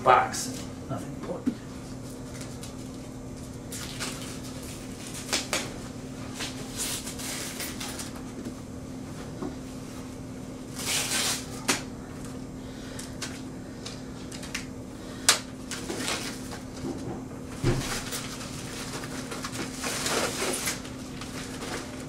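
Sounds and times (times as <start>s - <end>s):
steady low hum: 0.0s - 22.0s
packaging rustling and scraping: 15.7s - 16.8s, 17.8s - 22.0s.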